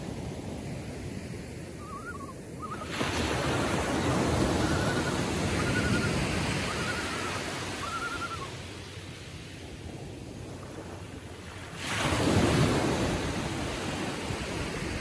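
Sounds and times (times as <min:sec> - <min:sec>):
small surf washing: 0:00.0 - 0:15.0
loons calling: 0:01.8 - 0:08.6
wave breaking: 0:01.9 - 0:08.5, 0:11.5 - 0:15.0.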